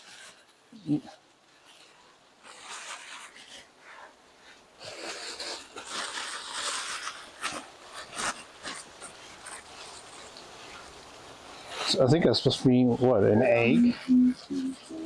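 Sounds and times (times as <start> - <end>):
wrapping paper rustling and crumpling: 0.0 - 0.8, 1.4 - 12.0.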